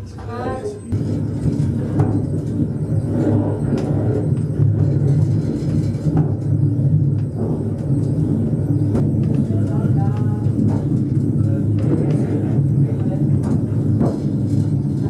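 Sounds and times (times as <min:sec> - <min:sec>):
funicular car rumbling: 0:00.0 - 0:15.0.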